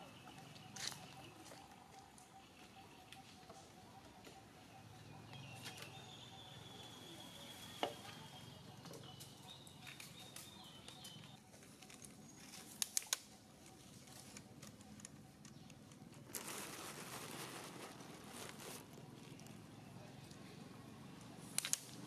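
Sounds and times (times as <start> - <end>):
crinkling rustle: 9.8 - 19.7.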